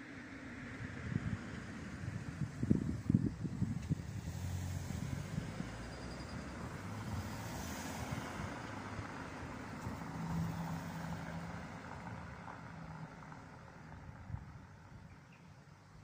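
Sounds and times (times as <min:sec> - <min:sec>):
road noise: 0:00.0 - 0:16.0
vehicle engine hum: 0:00.0 - 0:16.0.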